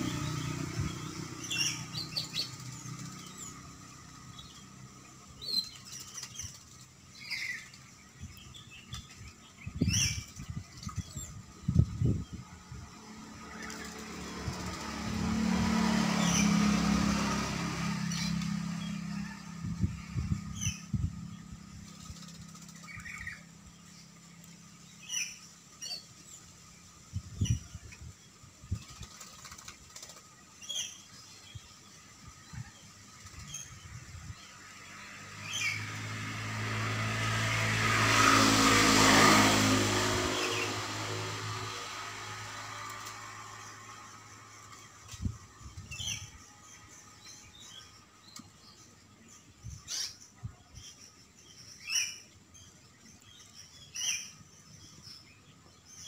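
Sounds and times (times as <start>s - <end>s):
high bird chirps: 0.0s - 12.4s
wing flutters: 0.0s - 25.4s, 28.6s - 31.2s, 32.6s - 34.0s, 38.2s - 47.1s
vehicles passing by: 0.0s - 56.0s.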